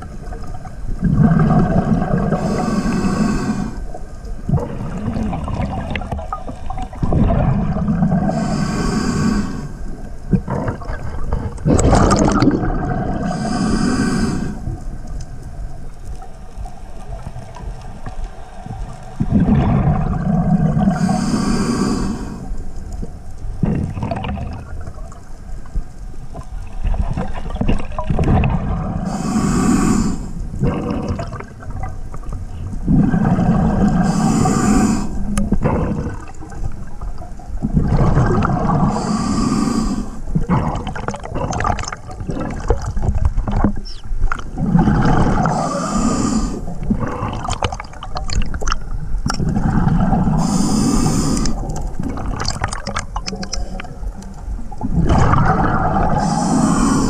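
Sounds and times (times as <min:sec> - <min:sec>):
exhaled bubbles rumbling: 0:00.0 - 0:57.0
regulator breathing hiss: 0:02.3 - 0:04.0, 0:08.3 - 0:09.9, 0:13.2 - 0:14.7, 0:20.9 - 0:22.7, 0:29.1 - 0:30.4, 0:33.8 - 0:35.4, 0:38.8 - 0:40.3, 0:45.4 - 0:47.3, 0:50.3 - 0:51.6, 0:56.1 - 0:57.0.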